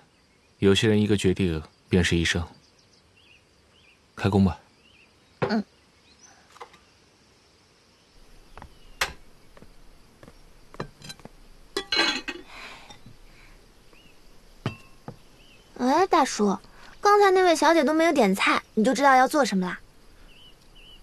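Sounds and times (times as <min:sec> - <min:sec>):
kitchenware clinking: 0:10.7 - 0:13.1, 0:14.6 - 0:15.2.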